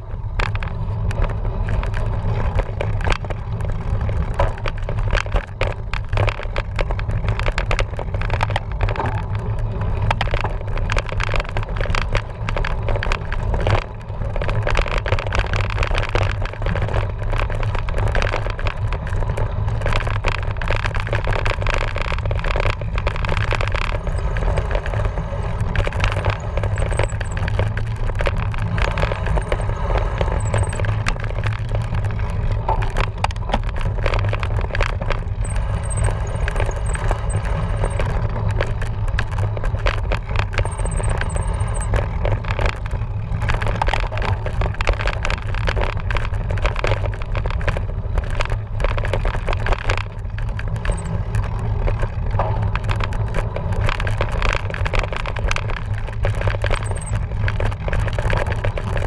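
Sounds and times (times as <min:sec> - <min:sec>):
bike rattling over rough ground: 0:00.0 - 0:59.0.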